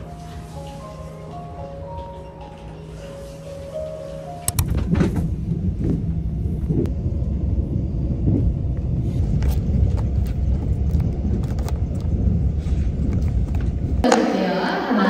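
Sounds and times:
train rumbling on track: 0.0 - 14.1.

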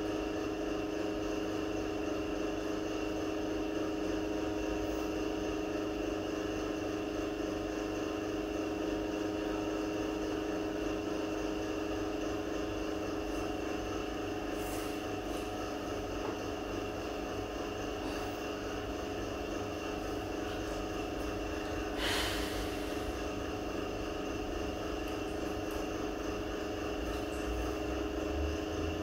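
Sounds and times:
steady droning hum: 8.8 - 29.0.

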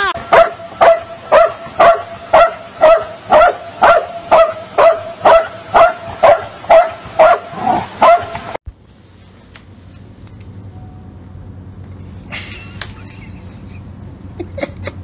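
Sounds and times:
dog barking: 0.3 - 8.4.

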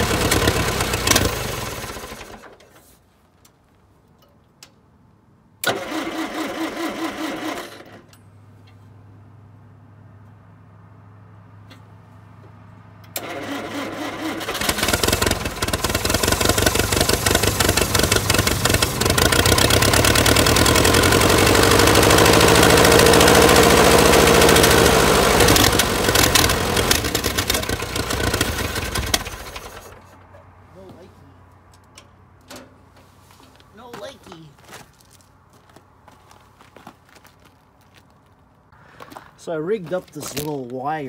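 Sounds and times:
engine cranking and running unevenly: 0.0 - 2.7, 5.6 - 8.0, 13.1 - 30.3.

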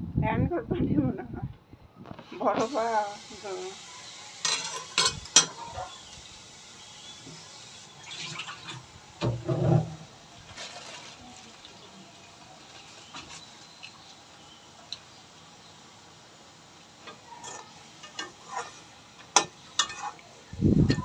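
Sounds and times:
faint steady hiss: 2.0 - 21.0
metal spatula scraping a pan: 4.4 - 6.0, 17.1 - 20.2.

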